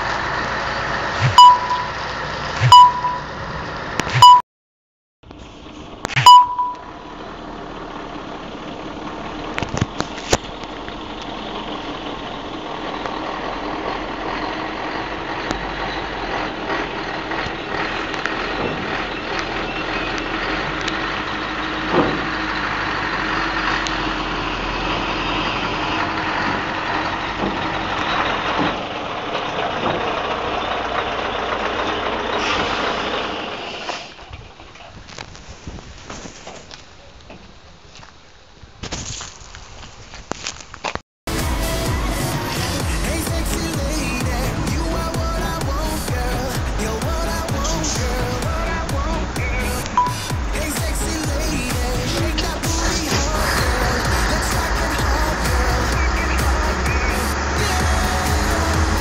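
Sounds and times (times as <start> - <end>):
diesel truck engine running: 0.0 - 4.4, 5.2 - 34.8, 41.3 - 59.0
short loud beep: 1.2 - 2.0, 2.6 - 3.3, 4.1 - 4.4, 6.2 - 6.9, 49.5 - 50.3.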